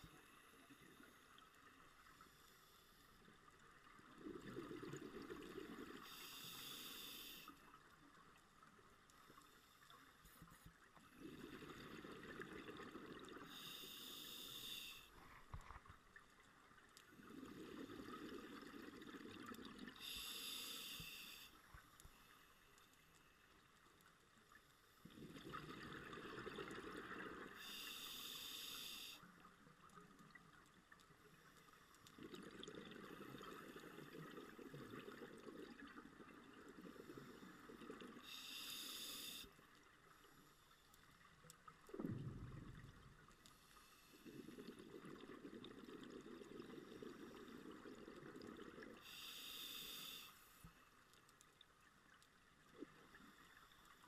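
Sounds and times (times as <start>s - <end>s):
regulator inhale hiss: 6.0s - 7.8s, 13.4s - 15.5s, 19.9s - 22.7s, 27.5s - 29.5s, 38.2s - 39.7s, 43.5s - 44.5s, 49.0s - 50.9s
bubbling exhaled air: 41.9s - 43.1s.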